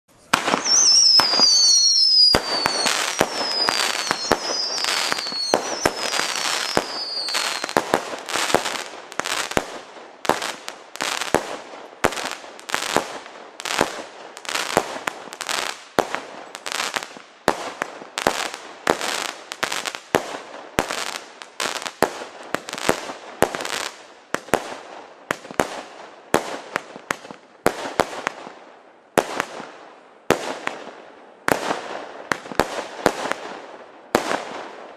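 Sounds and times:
falling firework whistles: 0.2s - 8.8s
fireworks firing shots: 0.2s - 28.5s.

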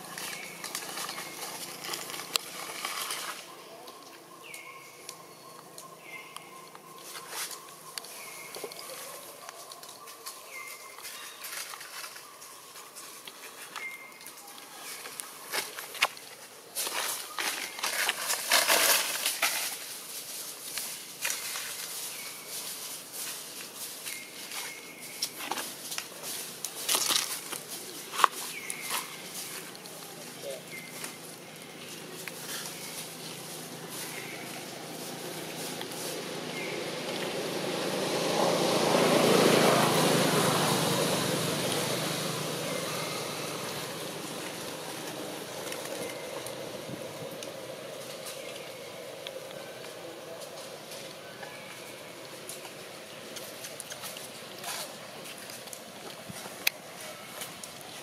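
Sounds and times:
dry leaves rustling and crackling: 0.0s - 58.0s
road vehicle passing by: 21.8s - 58.0s.

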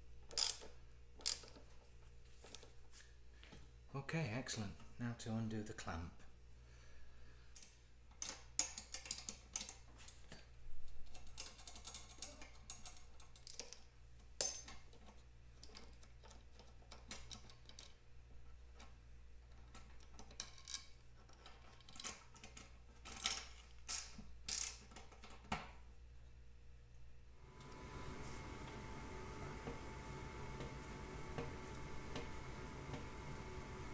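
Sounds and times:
metallic clicks and rattles: 7.6s - 9.8s, 10.8s - 18.0s, 18.7s - 25.6s.

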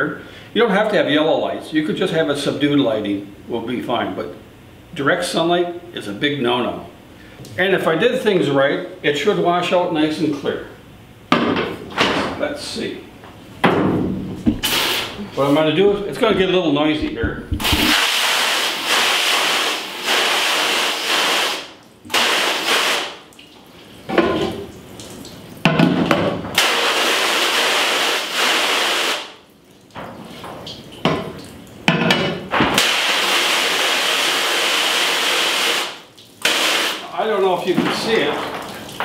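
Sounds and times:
water splashing in sink: 15.9s - 32.0s, 32.6s - 39.0s
water spraying from hose nozzle: 17.6s - 23.2s, 32.8s - 37.0s.

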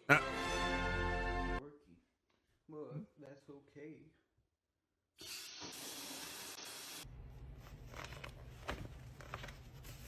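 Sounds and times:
paper pages rustling: 7.4s - 10.0s.

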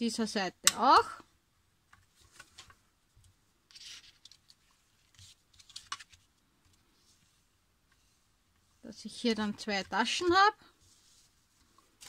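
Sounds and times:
cardstock rustling and scraping: 3.7s - 8.2s.

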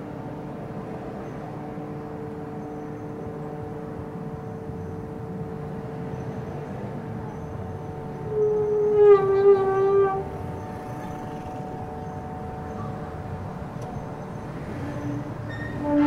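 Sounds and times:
lower horn tone: 7.3s - 16.0s
horn long tone: 7.5s - 16.0s.

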